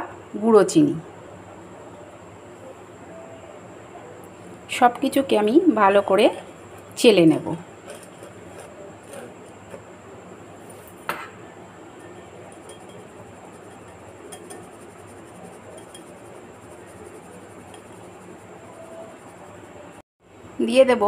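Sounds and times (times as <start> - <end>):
spoon scraping mesh sieve: 7.8 - 9.8, 12.0 - 19.7
spoon clinking on metal: 12.0 - 17.9.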